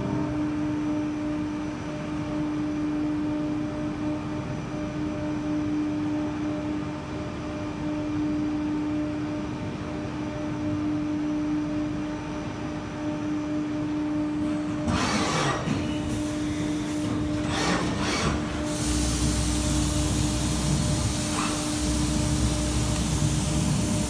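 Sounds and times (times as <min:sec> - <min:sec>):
machining center whining: 0:00.0 - 0:24.0
coolant spray hissing: 0:18.7 - 0:24.0.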